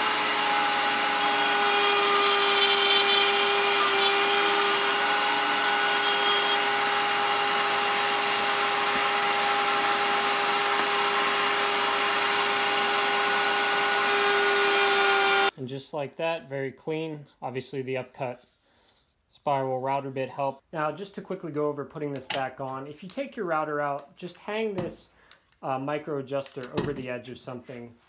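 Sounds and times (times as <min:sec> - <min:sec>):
router high-speed whine: 0:00.0 - 0:15.5.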